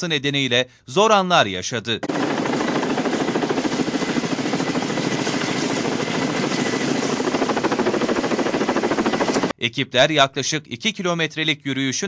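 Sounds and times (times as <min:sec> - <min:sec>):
helicopter rotors chopping: 0:02.0 - 0:09.6.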